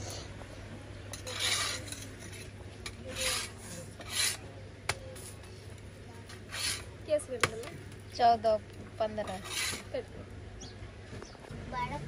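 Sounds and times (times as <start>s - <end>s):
metal spatula scraping a griddle: 1.1s - 4.4s, 6.5s - 6.9s, 9.3s - 9.9s.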